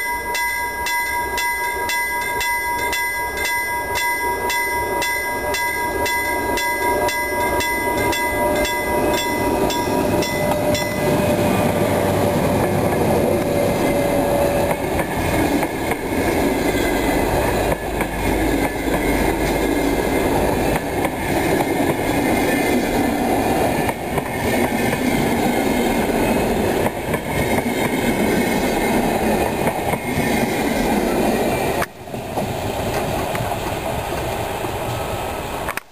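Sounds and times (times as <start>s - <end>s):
level crossing warning bell: 0.0s - 15.0s
train wheels on rails: 0.2s - 35.9s.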